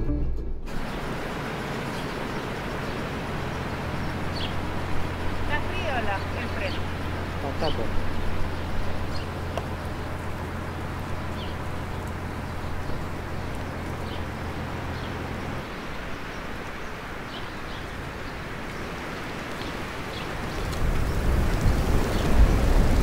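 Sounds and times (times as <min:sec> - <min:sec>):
engine idling hum: 0:00.0 - 0:18.9
outdoor hiss: 0:00.7 - 0:23.0
bird chirps: 0:00.8 - 0:10.5.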